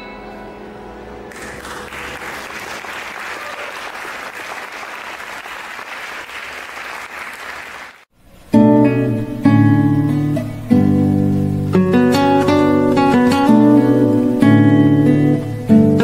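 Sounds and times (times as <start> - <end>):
audience applauding: 1.3 - 8.1
acoustic guitars playing: 8.4 - 16.0.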